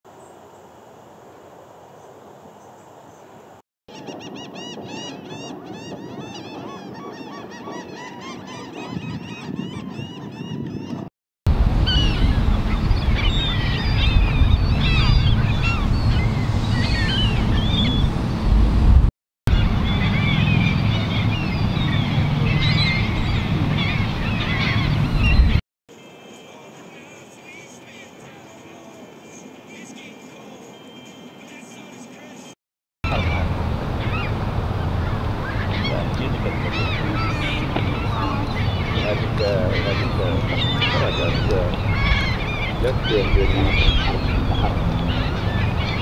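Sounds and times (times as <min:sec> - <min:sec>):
gulls calling: 0:03.9 - 0:11.1, 0:11.7 - 0:18.2, 0:19.5 - 0:46.0
steady low rumble: 0:11.5 - 0:25.6, 0:33.1 - 0:46.0
steady low rush: 0:33.2 - 0:46.0.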